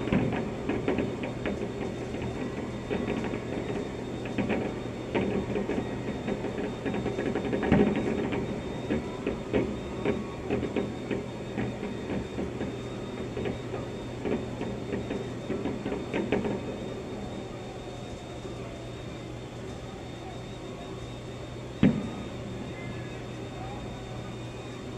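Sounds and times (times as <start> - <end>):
muffled fireworks bursting: 0.0 - 16.9.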